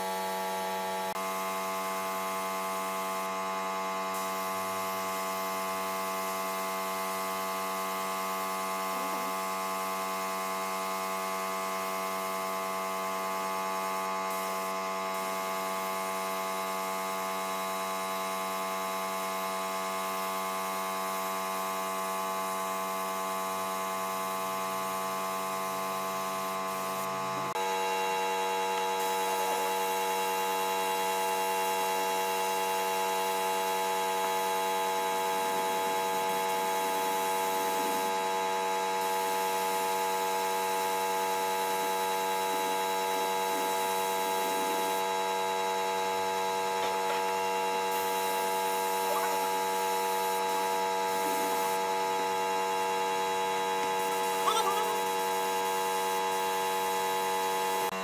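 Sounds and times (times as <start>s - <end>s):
air spray gun hissing: 4.1s - 7.0s, 13.3s - 16.8s, 25.0s - 27.6s, 28.5s - 57.9s.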